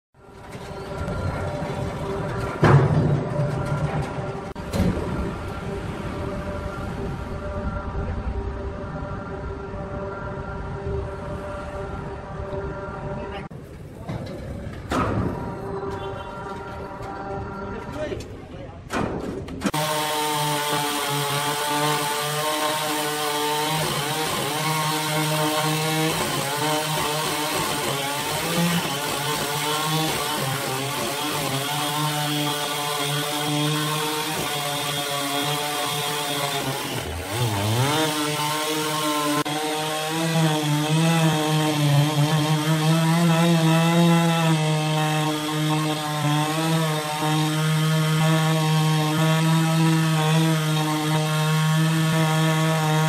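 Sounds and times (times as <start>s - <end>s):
chainsaw cutting into log: 19.7s - 53.0s.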